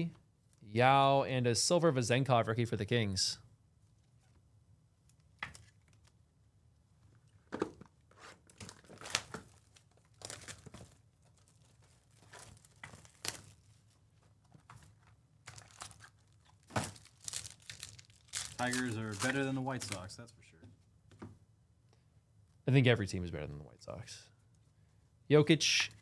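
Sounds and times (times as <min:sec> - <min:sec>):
shrink-wrap and cardboard tearing: 0:08.1 - 0:13.7, 0:15.4 - 0:20.2
foil pack crinkling: 0:08.4 - 0:13.9, 0:15.4 - 0:20.2.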